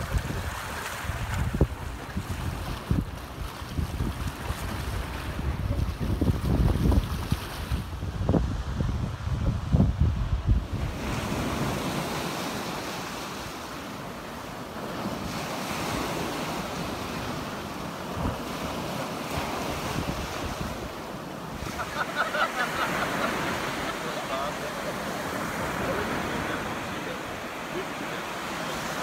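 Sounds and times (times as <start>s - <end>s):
wind buffeting microphone: 0.0s - 13.0s, 14.9s - 21.9s
sea waves breaking on beach: 0.0s - 29.0s.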